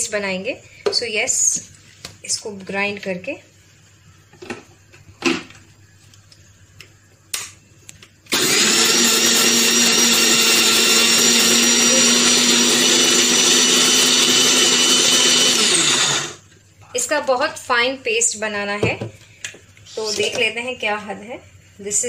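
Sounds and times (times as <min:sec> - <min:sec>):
electric mixer grinder whining: 0:08.3 - 0:16.5.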